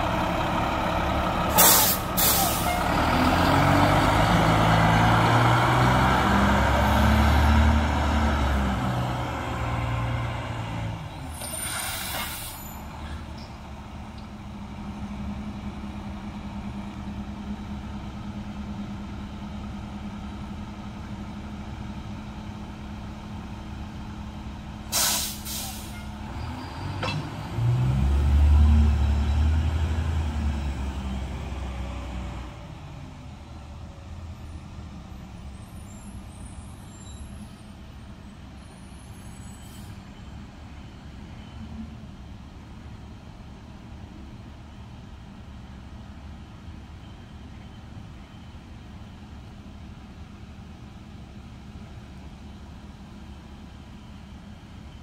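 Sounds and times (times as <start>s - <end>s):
garbage truck engine revving: 0.0s - 11.0s, 26.2s - 32.4s.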